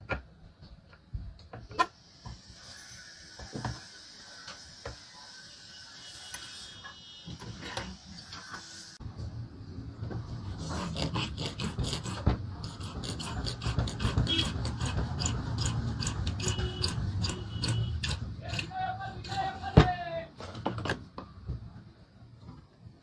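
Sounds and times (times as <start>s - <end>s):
file rasping on wood: 10.4s - 19.8s.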